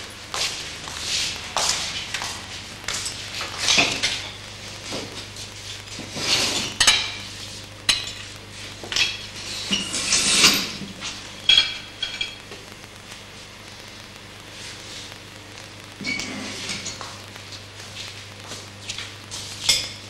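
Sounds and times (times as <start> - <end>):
plates and cutlery clinking: 6.2 - 7.3, 7.9 - 12.4, 19.6 - 20.0.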